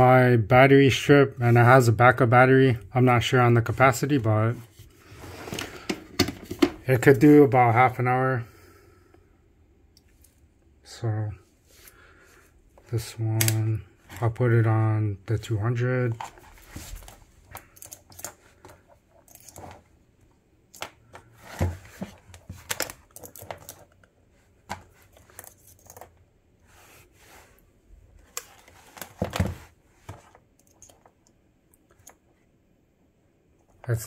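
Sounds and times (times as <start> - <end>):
multimeter and cables handled: 16.1 - 19.9, 20.7 - 26.2, 28.2 - 31.2.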